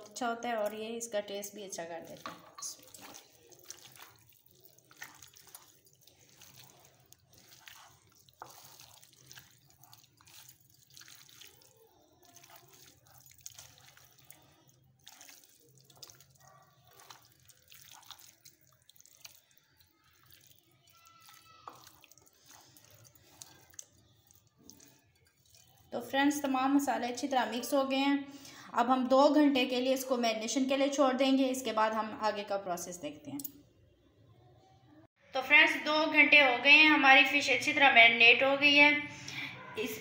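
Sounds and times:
hands squelching in marinade: 1.8 - 25.9.

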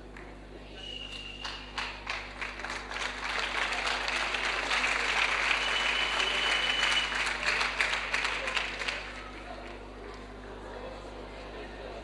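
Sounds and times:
crowd clapping: 1.2 - 10.4.

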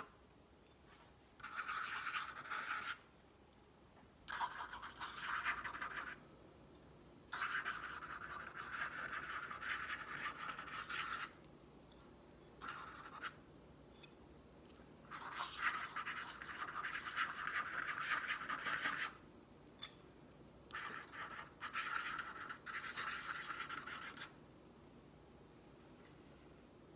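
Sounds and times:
pen nib scratching on paper: 1.4 - 3.0, 4.3 - 6.2, 7.3 - 11.4, 12.6 - 13.4, 15.1 - 19.2, 20.7 - 24.4.

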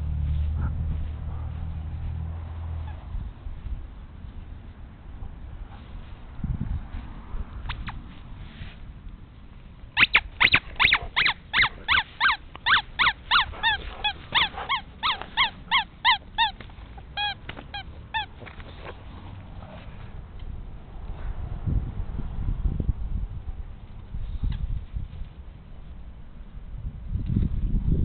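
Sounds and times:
squeaky dog toy squeaking: 10.0 - 18.4.

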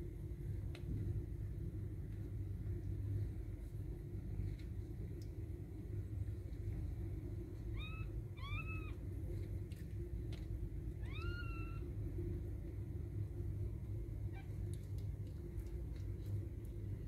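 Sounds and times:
kittens mewing: 7.8 - 9.0, 11.0 - 11.8.

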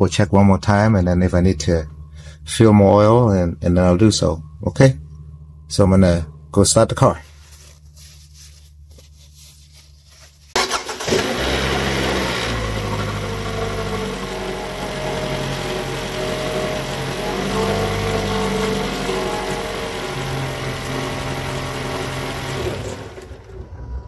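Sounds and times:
car engine starting and idling: 10.6 - 24.0.

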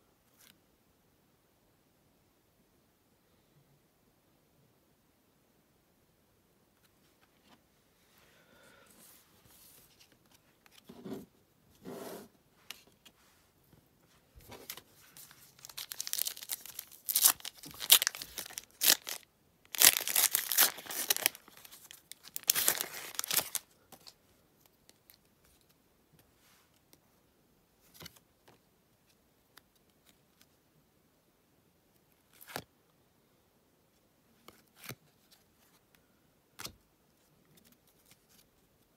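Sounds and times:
soft rustles: 6.8 - 15.9
plastic wrapper tearing and crinkling: 14.7 - 23.7.

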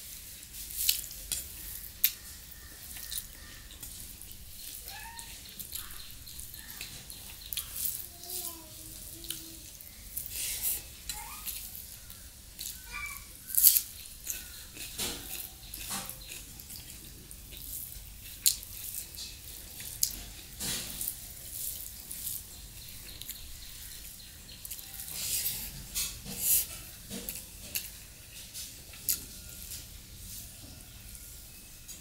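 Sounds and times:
fingers squishing rice: 0.1 - 29.4
wet smacking chewing: 0.9 - 7.8.

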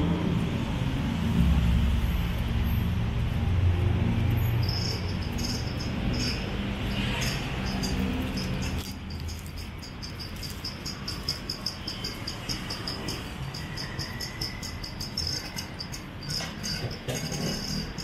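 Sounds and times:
low hum of street traffic: 0.0 - 18.0
cricket chirping: 4.4 - 18.0.

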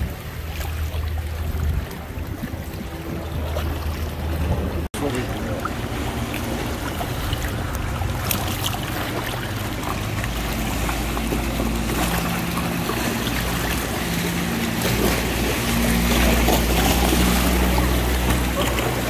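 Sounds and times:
boat engine drone: 0.0 - 19.0
sea water sloshing: 0.0 - 19.0
wind noise: 1.3 - 4.8.

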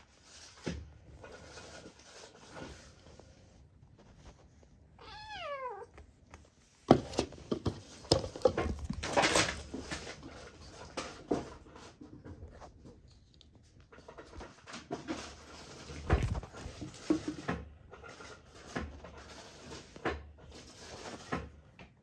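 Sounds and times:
clothing rustling: 0.0 - 7.9
kitten meowing: 5.0 - 6.0.

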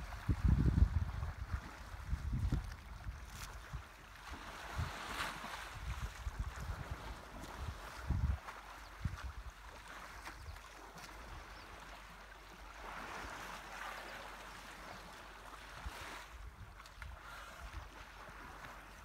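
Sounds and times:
wind rumble on microphone: 0.0 - 11.7
river water sloshing and splashing: 0.0 - 19.0.

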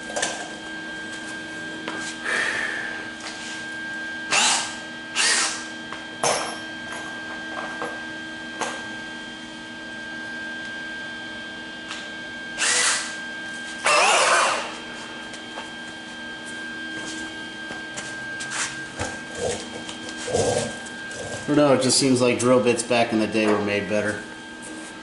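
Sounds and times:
electric drill cutting steel: 4.3 - 5.7, 12.6 - 13.2, 13.8 - 14.8.

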